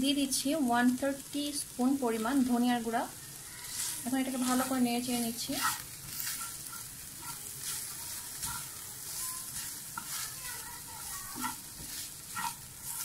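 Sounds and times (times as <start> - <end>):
meat sizzling in a frying pan: 0.0 - 13.0
spatula stirring and scraping: 3.2 - 13.0.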